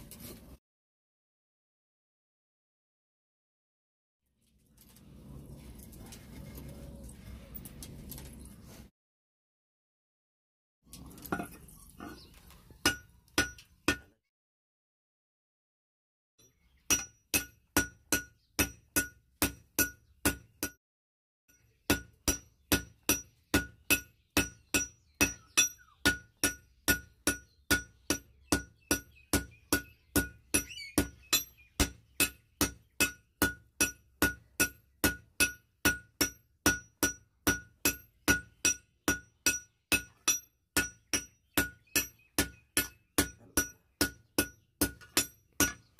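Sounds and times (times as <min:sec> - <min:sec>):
hammer striking steel on anvil: 0:12.8 - 0:14.1, 0:16.4 - 0:20.8, 0:21.5 - 0:45.9.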